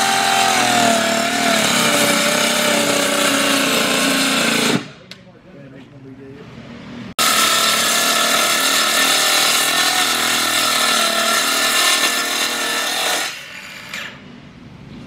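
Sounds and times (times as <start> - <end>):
circular saw cutting plastic: 0.0 - 4.9, 7.2 - 14.2.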